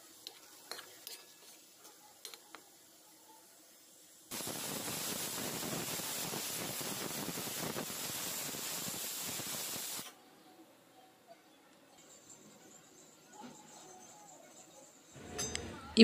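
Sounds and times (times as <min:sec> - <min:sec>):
food sizzling in hot oil: 0:00.0 - 0:10.1.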